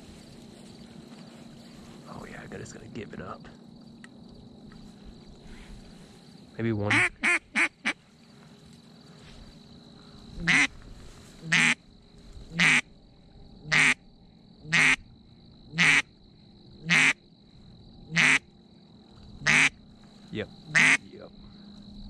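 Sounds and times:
duck quacking: 6.9s - 8.0s, 10.4s - 10.7s, 11.5s - 11.8s, 12.6s - 12.8s, 13.7s - 14.0s, 14.7s - 15.0s, 15.8s - 16.0s, 16.8s - 17.2s, 18.1s - 18.4s, 19.4s - 19.7s, 20.7s - 21.0s.

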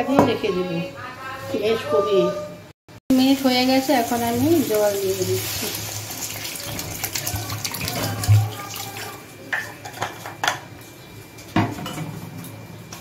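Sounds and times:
water pouring into a pot: 3.4s - 9.3s.

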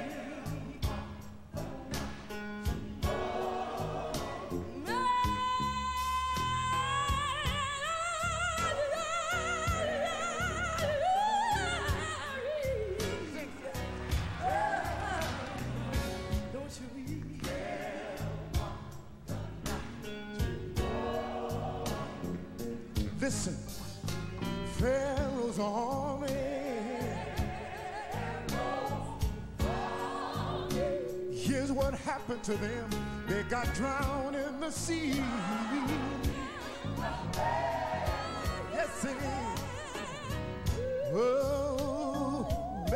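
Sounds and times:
band with beat and bass: 0.0s - 42.9s
woman singing gospel: 4.2s - 15.8s, 33.5s - 42.9s.

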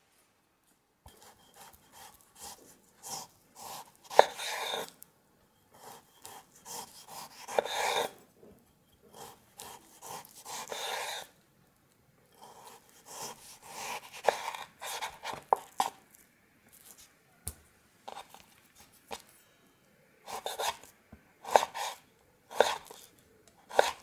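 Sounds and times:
knife sawing through meat: 6.6s - 8.2s, 9.2s - 11.3s, 12.5s - 15.2s, 21.5s - 22.0s, 23.7s - 24.0s.

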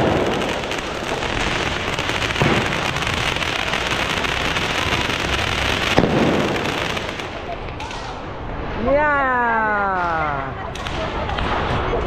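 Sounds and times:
firework fountain crackling hiss: 0.0s - 8.1s
firework sharp bangs: 0.0s - 8.1s.

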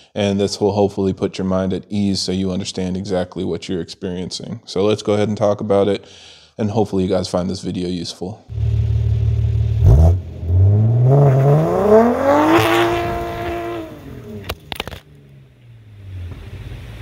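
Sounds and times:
exhaust pops: 8.5s - 15.4s, 16.0s - 17.0s
car exhaust idling and revving: 8.5s - 17.0s.

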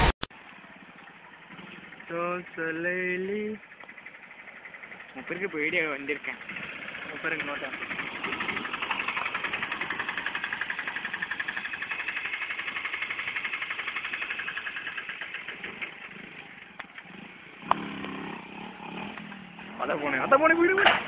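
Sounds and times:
small motorcycle engine running: 0.0s - 20.8s.

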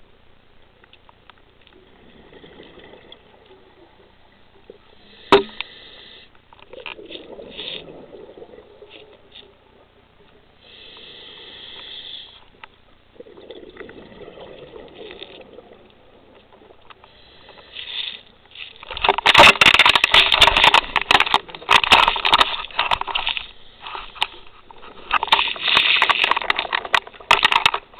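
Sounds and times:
regulator hiss underwater: 4.9s - 6.3s, 10.6s - 12.5s
exhaled bubbles rushing: 6.8s - 9.1s, 13.1s - 16.8s.

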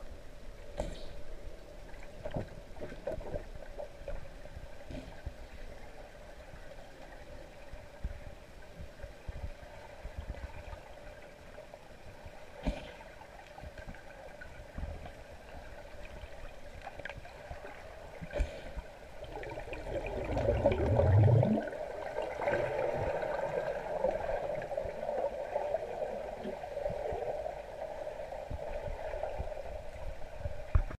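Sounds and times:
muffled underwater water wash: 0.0s - 30.9s
underwater turbulence from fins: 17.1s - 30.8s
bubbling rush: 19.2s - 22.7s.

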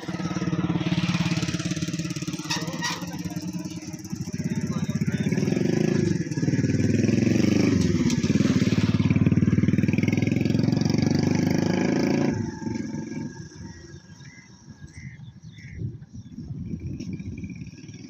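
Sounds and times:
motorcycle engine running: 0.0s - 18.0s.

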